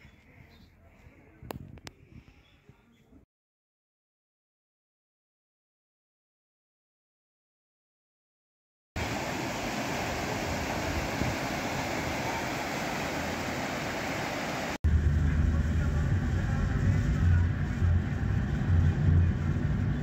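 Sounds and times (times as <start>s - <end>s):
steady rushing noise: 9.0s - 20.0s
motor vehicle low rumble: 14.9s - 20.0s.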